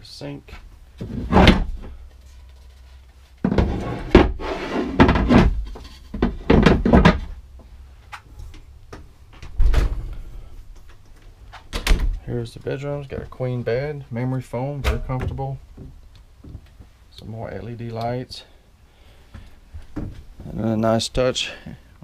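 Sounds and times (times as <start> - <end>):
scraping against counter: 3.4 - 6.2.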